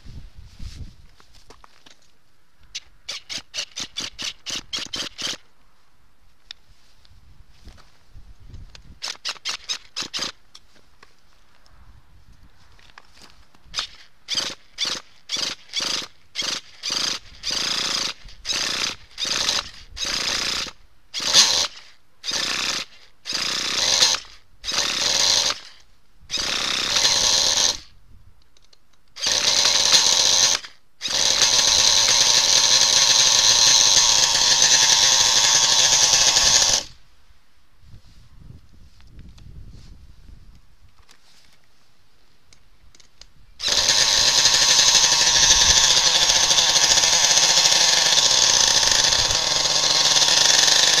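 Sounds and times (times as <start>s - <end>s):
electric starter spinning engine: 29.2s - 37.0s, 43.6s - 51.0s.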